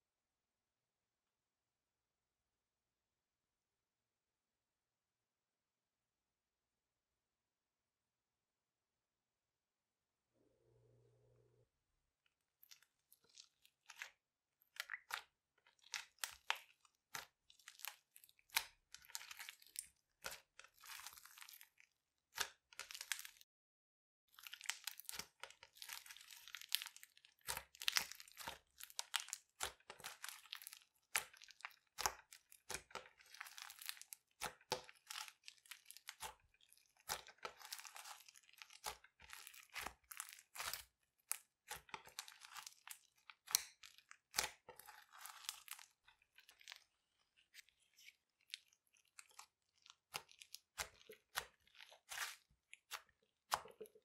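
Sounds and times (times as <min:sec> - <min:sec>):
slime squelching and crackling: 0:12.3 - 0:23.5, 0:24.3 - 0:54.0.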